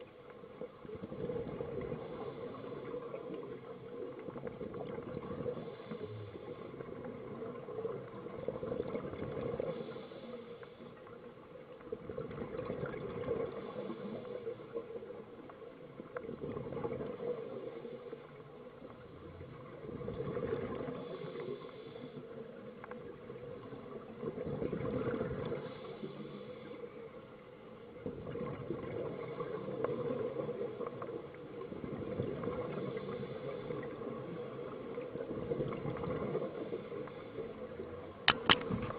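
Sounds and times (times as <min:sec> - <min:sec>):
steady underwater hiss: 0:00.0 - 0:38.9
diver exhaling bubbles underwater: 0:24.3 - 0:25.7, 0:35.2 - 0:37.3.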